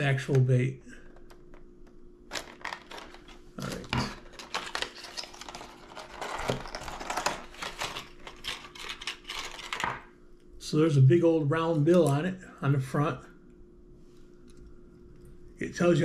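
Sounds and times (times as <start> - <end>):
packaging crinkling: 2.3 - 10.0.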